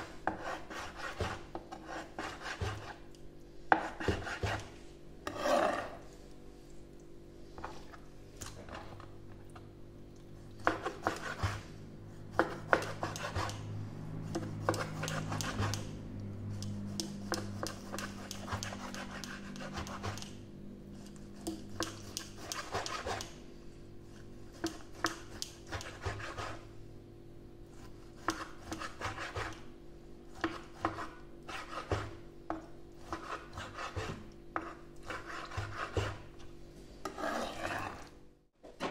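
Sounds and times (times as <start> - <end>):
low hum: 13.5 - 18.2.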